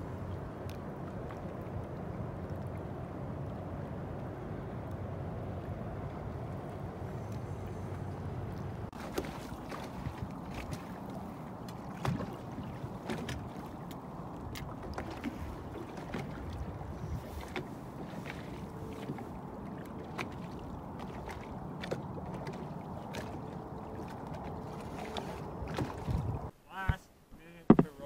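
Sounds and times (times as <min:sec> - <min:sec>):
water lapping against boat hull: 0:00.0 - 0:28.0
hull knocks: 0:27.7 - 0:28.0.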